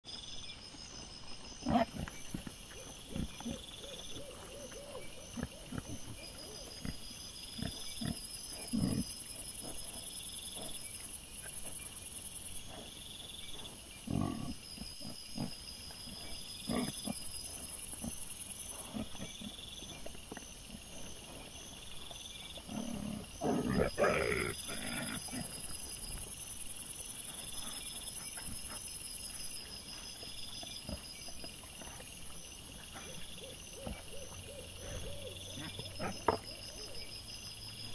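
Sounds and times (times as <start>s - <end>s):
wild boar grunting: 1.6s - 37.9s.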